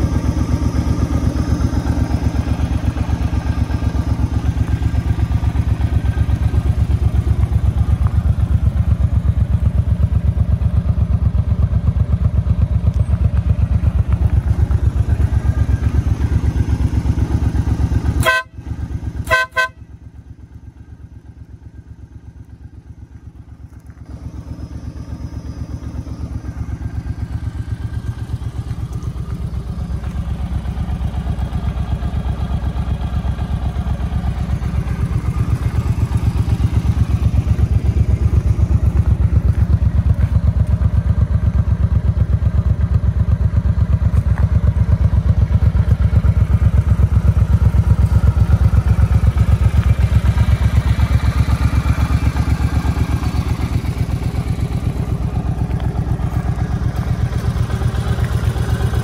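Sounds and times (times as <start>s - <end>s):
motorcycle engine idling: 0.0s - 59.0s
horn beeps: 18.2s - 18.6s, 19.2s - 19.8s.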